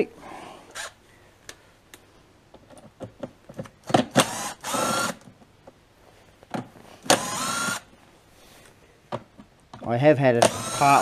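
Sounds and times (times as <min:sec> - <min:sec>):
cordless drill whining: 0:00.7 - 0:01.0, 0:04.1 - 0:05.3, 0:07.0 - 0:07.9, 0:10.4 - 0:11.0.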